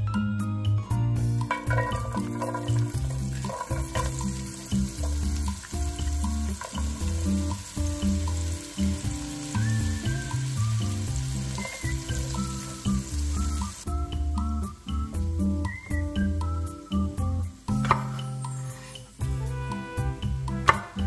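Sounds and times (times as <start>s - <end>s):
background music with bass: 0.0s - 21.0s
onions sizzling in skillet: 1.4s - 20.8s
wooden spatula stirring: 1.5s - 9.6s.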